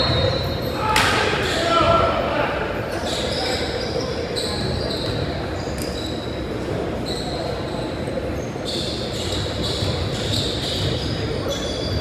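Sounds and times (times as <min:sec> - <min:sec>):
echoing gym din: 0:00.0 - 0:03.6
sneakers squeaking on hardwood: 0:08.4 - 0:12.0.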